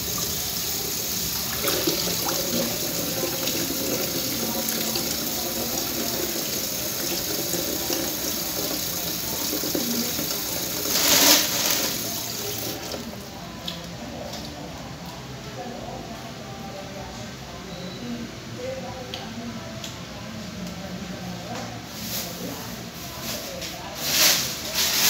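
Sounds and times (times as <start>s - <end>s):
grapes being rinsed: 0.0s - 13.8s
tap running into sink: 1.5s - 13.1s.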